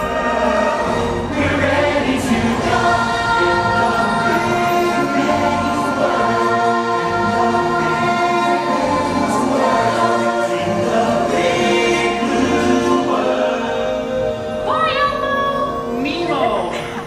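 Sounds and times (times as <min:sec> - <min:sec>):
singing over music: 0:00.0 - 0:16.5.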